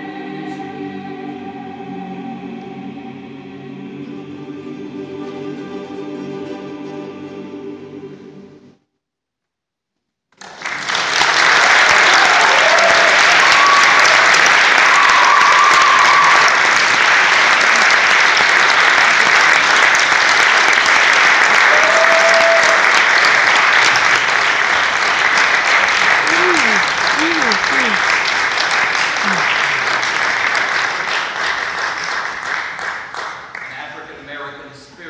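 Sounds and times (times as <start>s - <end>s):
choir chord with strings: 0.0s - 8.8s
audience applause: 10.4s - 34.2s
audience cheers: 11.4s - 19.6s, 20.6s - 24.2s, 25.7s - 28.3s.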